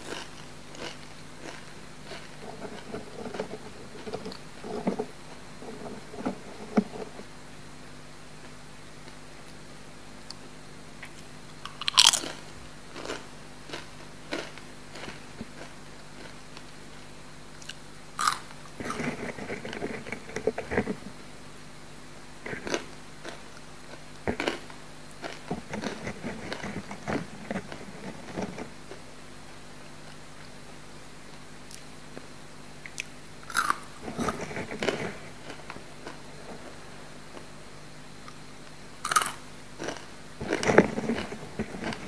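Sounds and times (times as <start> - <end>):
crunchy chewing: 0.0 - 7.3, 10.2 - 16.8, 17.5 - 21.1, 22.4 - 29.1, 31.3 - 37.6, 38.2 - 42.0
crunching bite into chip: 11.6 - 12.4, 17.6 - 19.2, 32.9 - 36.2, 39.0 - 42.0.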